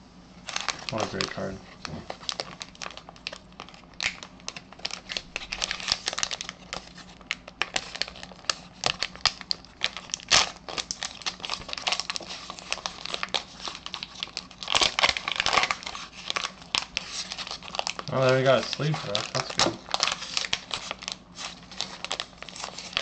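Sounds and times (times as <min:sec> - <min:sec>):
foil pack crinkling and tearing: 0:00.4 - 0:23.0.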